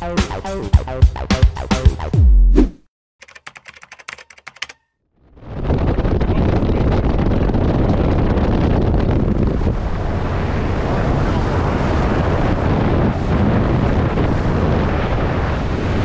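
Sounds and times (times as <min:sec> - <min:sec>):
faint rapid clicks: 0:03.2 - 0:04.8
wind and water rushing: 0:07.4 - 0:16.0.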